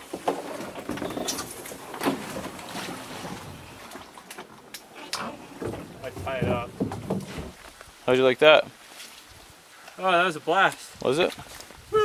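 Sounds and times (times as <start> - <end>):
canoe hull scraping against logs: 0.0 - 7.8.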